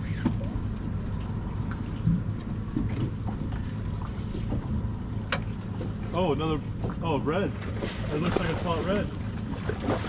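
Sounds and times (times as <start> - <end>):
water around boat: 0.0 - 10.0.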